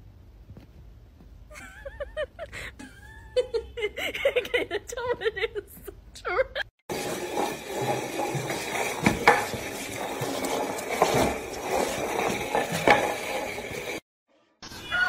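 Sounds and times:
pot knocking: 0:06.9 - 0:14.0
pot scraping across tile floor: 0:06.9 - 0:14.0.

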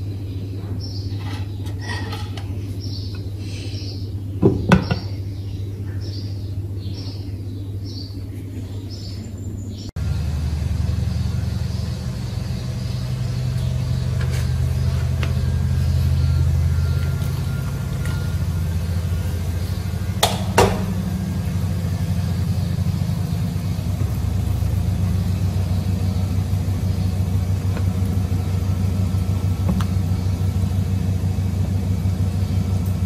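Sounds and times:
induction cooktop humming: 0:00.0 - 0:33.0
sharp knocks: 0:20.2 - 0:21.0.

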